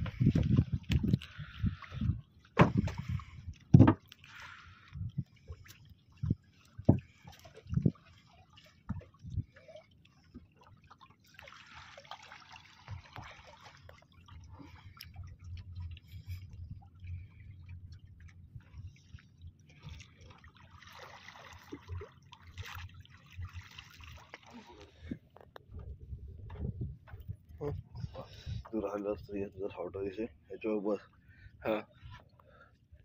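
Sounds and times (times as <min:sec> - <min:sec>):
water splashing and dripping: 0:00.0 - 0:25.9
water sloshing against a boat: 0:00.0 - 0:33.0.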